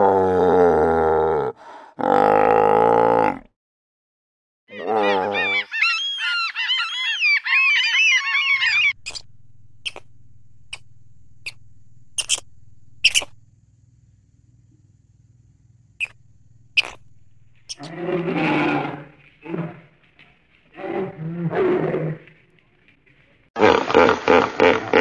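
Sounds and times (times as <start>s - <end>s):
gull crying: 4.7s - 11.6s, 16.8s - 18.9s
steady low hum: 8.7s - 18.4s.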